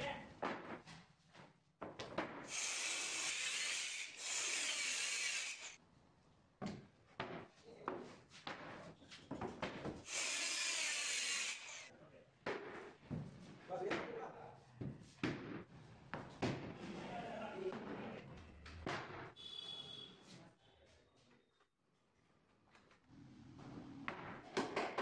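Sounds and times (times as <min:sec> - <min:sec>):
power tool cutting plywood: 0:02.5 - 0:05.8, 0:10.1 - 0:11.9.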